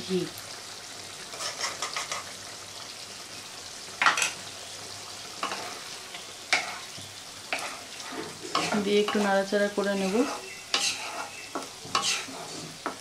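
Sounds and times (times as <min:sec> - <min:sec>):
curry sizzling: 0:00.0 - 0:13.0
utensil scraping a pan: 0:01.3 - 0:02.3, 0:06.5 - 0:06.9, 0:07.5 - 0:13.0.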